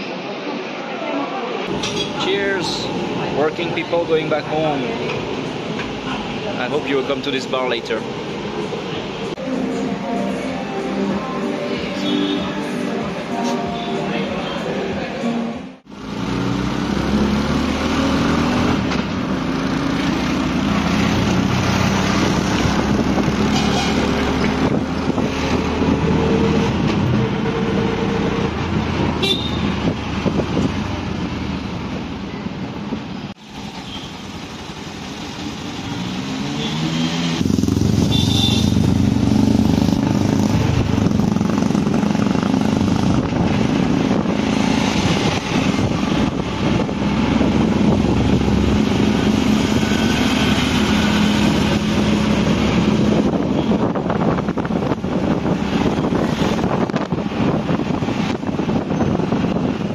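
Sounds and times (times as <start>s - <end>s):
motorbike and car engines: 1.6s - 59.9s
horn toots: 29.2s - 29.8s, 38.0s - 39.0s.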